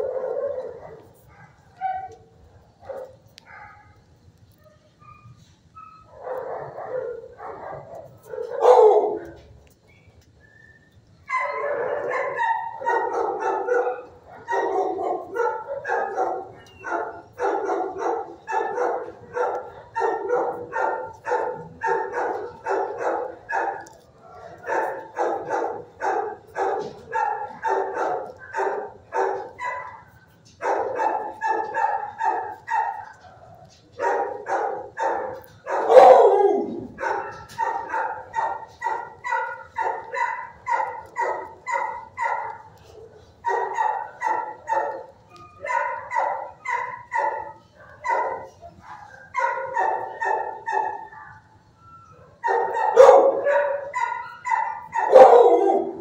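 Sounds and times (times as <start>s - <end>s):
dogs barking: 0.0s - 9.8s, 11.2s - 56.0s
deep dog bark: 6.2s - 9.4s, 11.3s - 30.0s, 34.0s - 42.7s, 52.4s - 56.0s.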